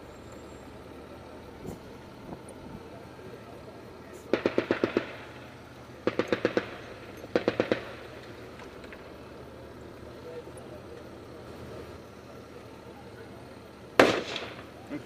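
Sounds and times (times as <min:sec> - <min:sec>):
low steady hum: 0:00.0 - 0:15.0
machine gun bursts: 0:04.3 - 0:05.4, 0:06.0 - 0:08.2.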